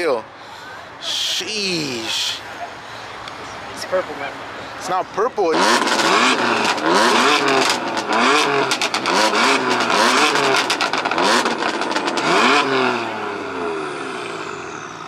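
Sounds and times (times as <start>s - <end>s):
car engine revving: 4.8s - 15.0s
exhaust crackles: 5.4s - 15.0s.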